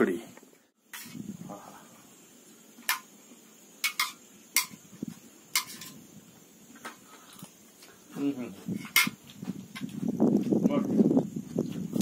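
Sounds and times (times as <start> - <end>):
steel plates and utensils clinking: 3.8 - 4.8, 5.6 - 6.0.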